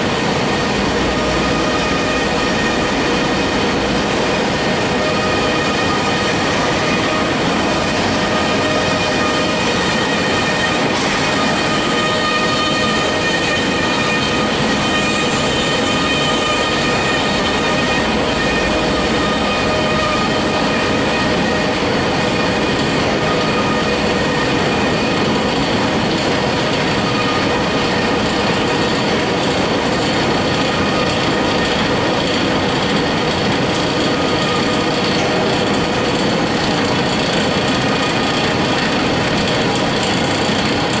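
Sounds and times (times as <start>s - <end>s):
machine clatter and hum: 0.0s - 41.0s.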